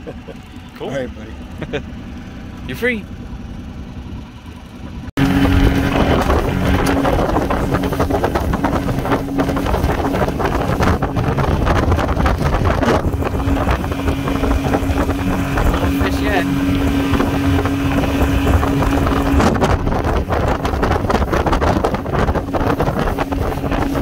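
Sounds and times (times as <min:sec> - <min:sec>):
outboard motor drone: 0:00.0 - 0:24.0
rushing water: 0:05.2 - 0:24.0
wind buffeting microphone: 0:05.2 - 0:24.0.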